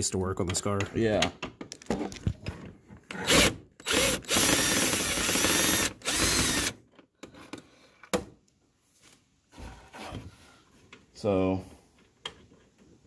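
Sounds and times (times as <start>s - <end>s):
cordless power driver spinning: 3.2s - 6.8s.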